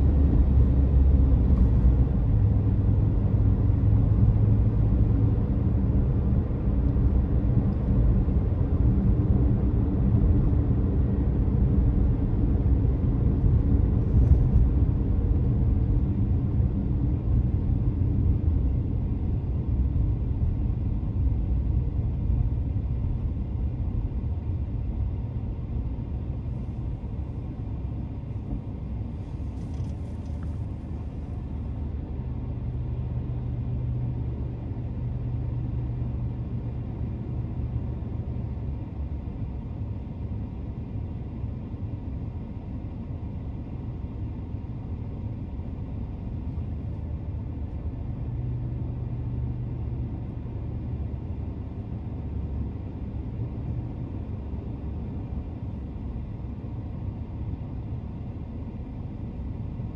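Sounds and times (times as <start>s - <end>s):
car cabin rumble of tyres and engine: 0.0s - 59.9s.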